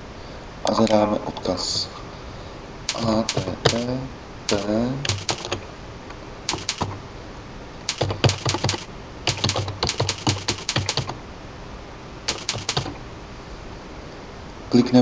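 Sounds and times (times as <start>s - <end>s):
typing on computer keyboard: 2.9s - 3.9s, 4.5s - 5.6s, 6.5s - 7.0s, 7.9s - 11.2s, 12.3s - 13.0s.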